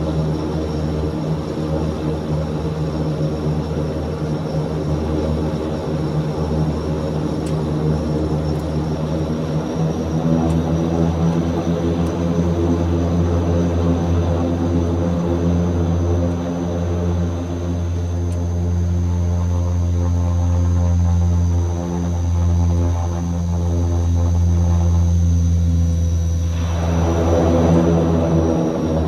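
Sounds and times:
turboprop engines droning: 0.0 - 29.0.

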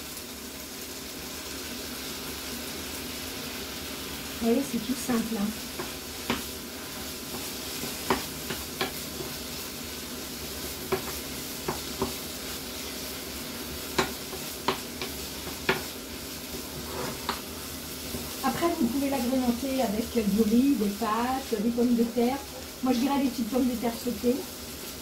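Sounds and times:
seafood sizzling in a frying pan: 0.0 - 25.0
spatula knocking against pan: 7.3 - 9.4, 10.9 - 12.2, 13.9 - 15.9.

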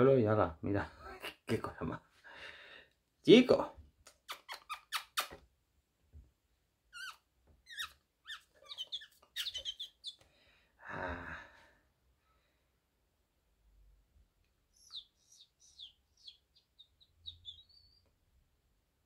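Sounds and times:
linnet chirping calls: 7.0 - 10.2, 14.7 - 18.1.

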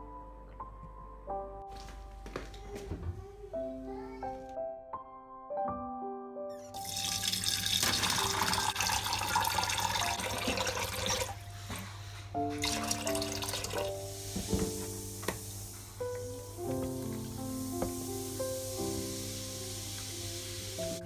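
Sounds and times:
water running from kitchen tap: 6.7 - 11.7, 12.5 - 21.0
washing chicken in metal bowl: 6.8 - 11.4, 12.5 - 15.0.

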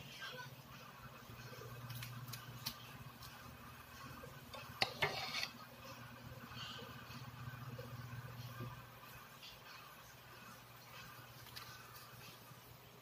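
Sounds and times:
plates and utensils clinking: 4.5 - 5.6.

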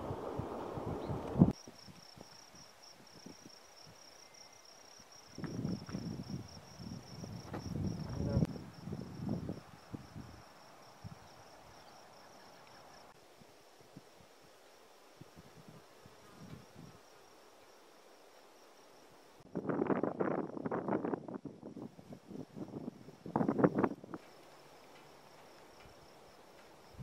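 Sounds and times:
wind buffeting microphone: 0.0 - 2.4, 5.4 - 11.5, 19.5 - 24.3
insect trill: 1.5 - 27.0.

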